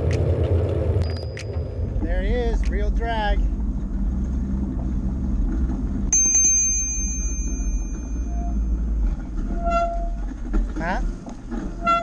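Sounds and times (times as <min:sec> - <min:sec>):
low rumble of bike ride: 0:00.0 - 0:12.0
bicycle brakes squealing: 0:09.4 - 0:10.3, 0:11.7 - 0:12.0.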